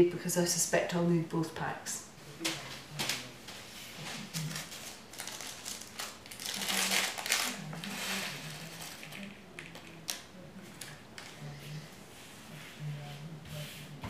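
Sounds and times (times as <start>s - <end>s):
plastic packet crinkling: 4.3s - 10.2s.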